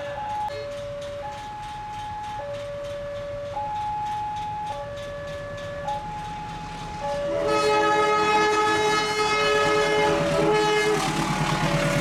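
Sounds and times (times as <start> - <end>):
train horn: 7.2 - 11.4.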